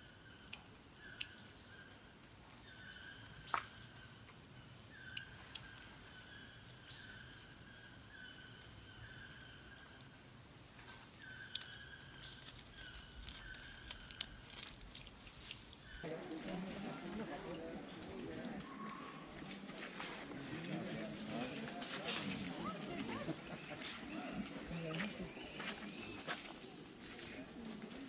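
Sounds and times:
high insect drone: 0.0s - 16.1s
sharp snaps and clicks: 0.4s - 1.4s, 11.4s - 15.6s.

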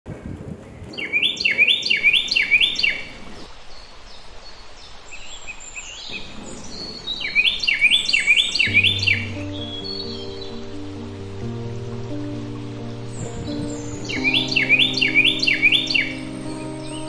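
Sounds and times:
outdoor background hiss: 0.3s - 17.0s
birds chirping softly: 0.5s - 17.0s
songbird whistling: 7.1s - 10.6s, 13.1s - 17.0s.

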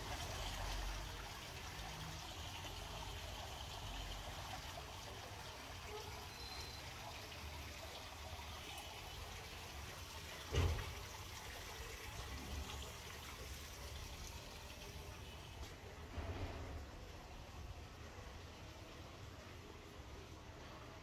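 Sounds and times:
fountain water trickling down wall: 0.0s - 21.0s.

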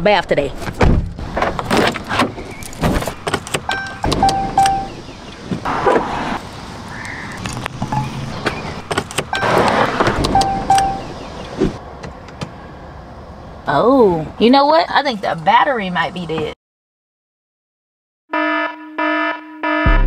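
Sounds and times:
car door opening: 0.7s - 6.1s, 7.9s - 12.6s
short electronic beeps: 3.7s - 5.0s, 10.2s - 11.1s.

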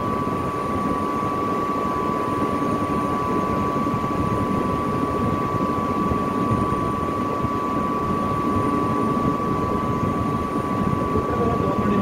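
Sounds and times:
high-pitched whine: 0.0s - 12.0s
industrial machinery humming: 0.0s - 12.0s.

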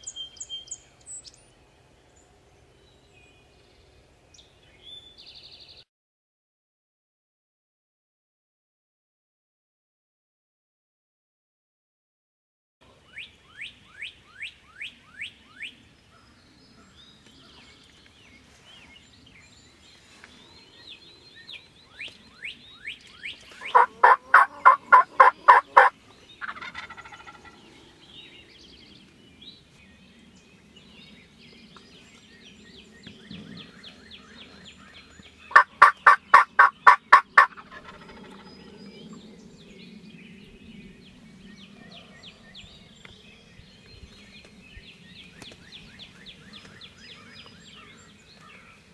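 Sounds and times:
turkey gobbling: 23.6s - 27.6s, 35.5s - 38.4s.

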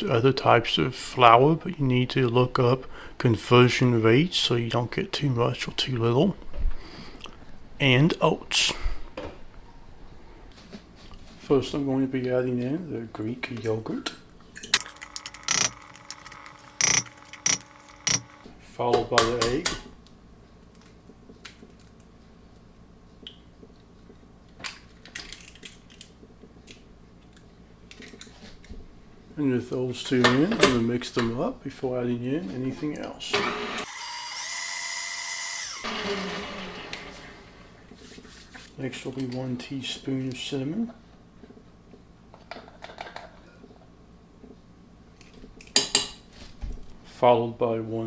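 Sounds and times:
eggshell cracking: 14.8s - 18.4s.

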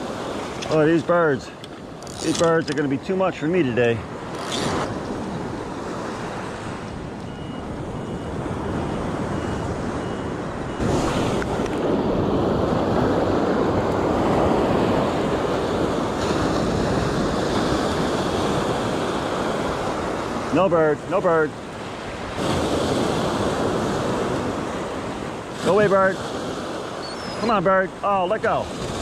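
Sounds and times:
surf breaking on a sandy beach: 0.0s - 29.0s
wind on the microphone: 3.8s - 20.5s.

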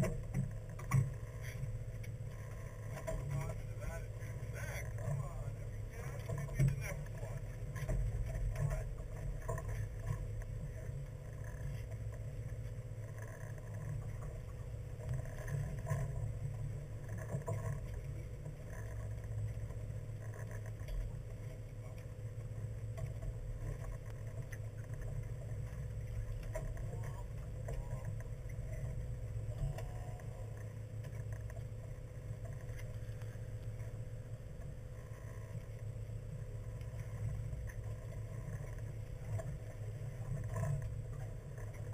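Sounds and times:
boat engine drone: 0.0s - 41.9s.

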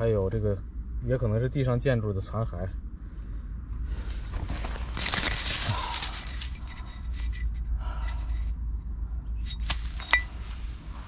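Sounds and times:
dry grass and twigs rustling: 3.8s - 8.6s, 9.4s - 11.0s.

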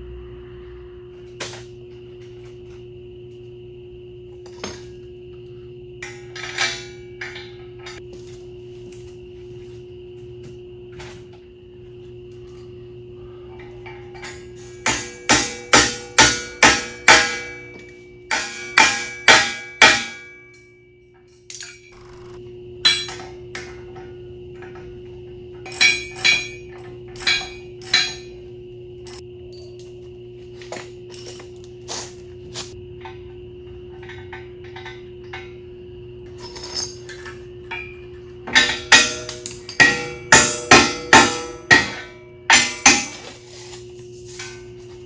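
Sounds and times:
hammer striking metal: 14.1s - 20.8s, 21.5s - 23.7s, 25.7s - 28.3s, 37.7s - 43.3s.

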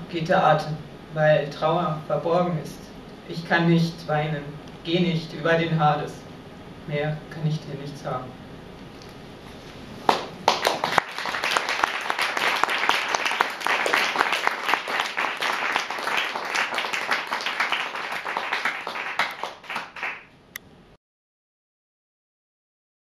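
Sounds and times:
audience applauding: 10.1s - 20.3s.

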